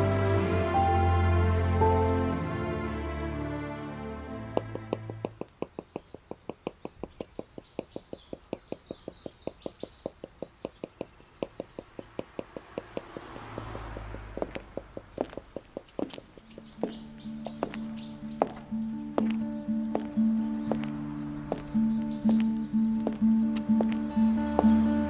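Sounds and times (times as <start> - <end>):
birds chirping: 4.4 - 25.0
pencil tapping on sketch pad: 4.6 - 16.8.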